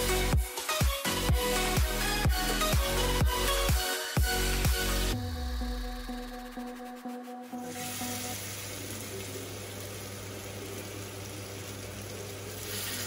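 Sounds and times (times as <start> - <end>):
background music: 0.0 - 11.4
fish sizzling in oil: 7.6 - 13.0.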